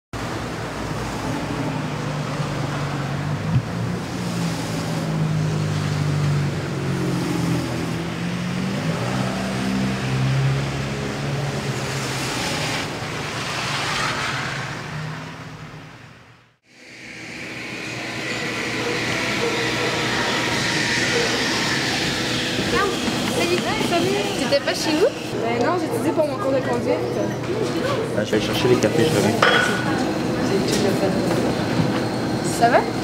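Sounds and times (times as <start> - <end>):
vehicle passing by: 0.2 - 16.5
city street traffic: 0.2 - 33.0.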